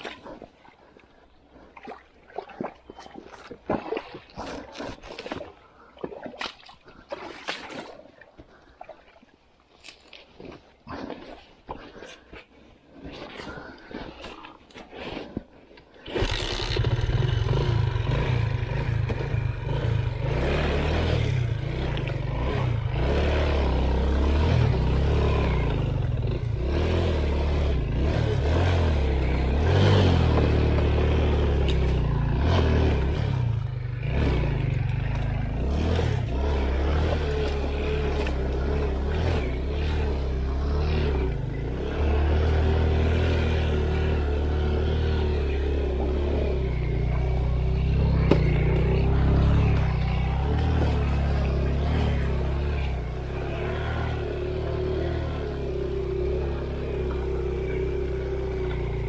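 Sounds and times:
motorcycle engine revving: 16.1 - 59.0.

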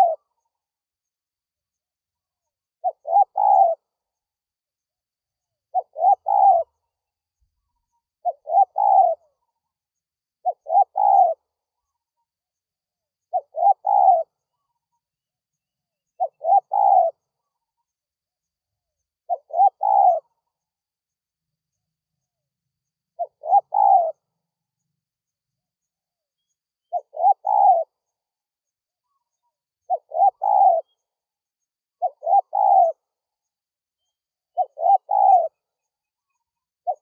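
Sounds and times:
dove cooing: 0.0 - 0.3, 2.8 - 3.9, 5.7 - 6.8, 8.2 - 9.4, 10.4 - 11.4, 13.3 - 14.4, 16.2 - 17.2, 19.3 - 20.4, 23.2 - 24.3, 26.9 - 28.0, 29.9 - 31.0, 32.0 - 33.0, 34.5 - 35.6.

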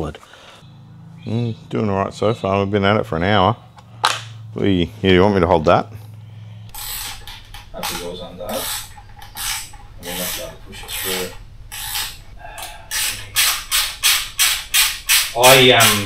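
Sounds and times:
hand tool scraping metal: 6.7 - 16.0
metal squeal: 6.7 - 16.0.

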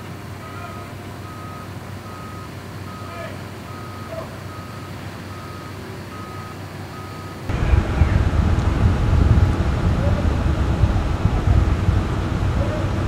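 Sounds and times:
low engine hum: 0.0 - 13.0
backup alarm beeping: 0.5 - 8.3.

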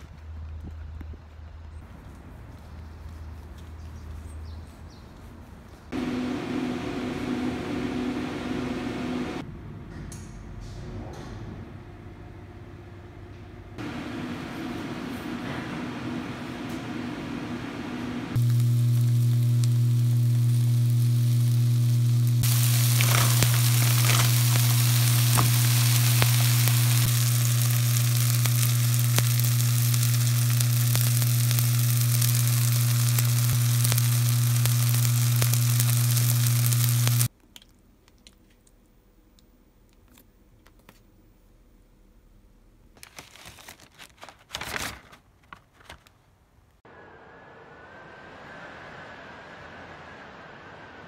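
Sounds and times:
low hum: 5.9 - 37.3, 46.9 - 51.0
rice sizzling in a frying pan: 18.4 - 37.3.

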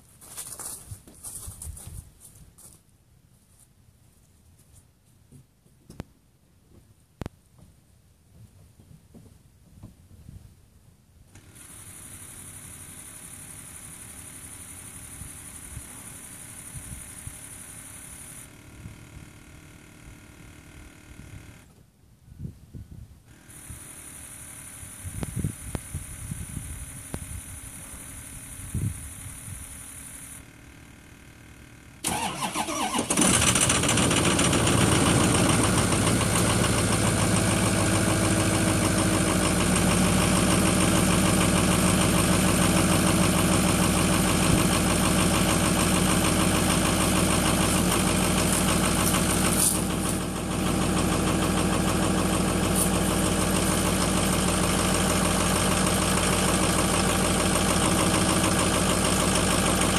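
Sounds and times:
diesel engine idling: 26.8 - 59.9
diesel engine cranking: 30.5 - 59.9.

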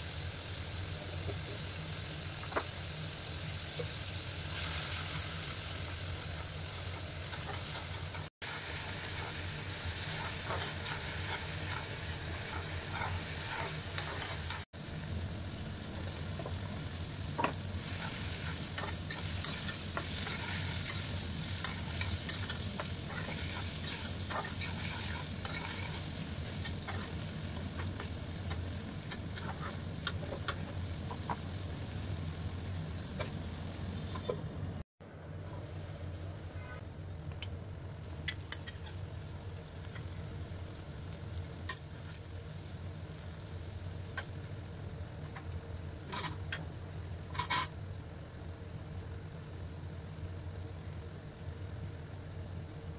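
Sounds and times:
oil sizzling: 0.0 - 34.8, 35.5 - 52.9
metal spatula scraping wok: 10.1 - 14.6, 17.9 - 27.2.

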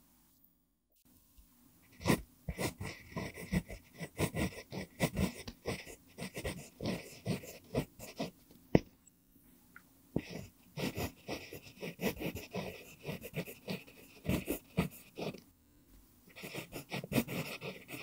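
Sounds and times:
pencil scratching on paper: 1.9 - 8.4, 10.2 - 15.4, 16.3 - 18.0.

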